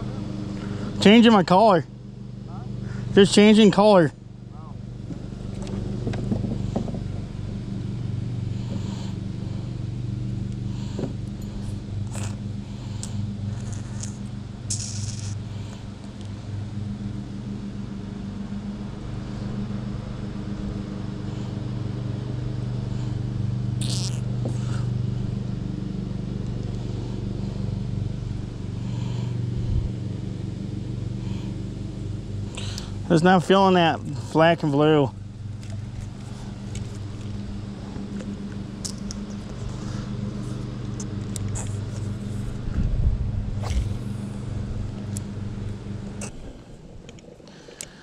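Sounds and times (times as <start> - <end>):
low motor hum: 0.0 - 48.0
clicks and scrapes tying fishing line: 10.9 - 15.8.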